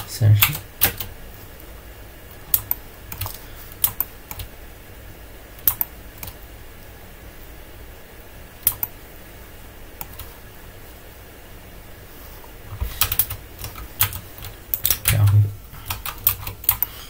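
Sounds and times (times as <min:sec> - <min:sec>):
keyboard keys clicking: 0:02.5 - 0:04.5, 0:13.0 - 0:16.9.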